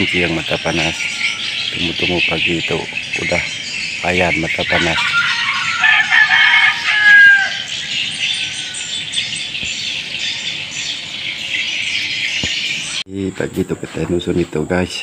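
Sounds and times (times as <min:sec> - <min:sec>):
insects and birds chirping: 0:00.0 - 0:15.0
rooster crowing: 0:04.7 - 0:09.1.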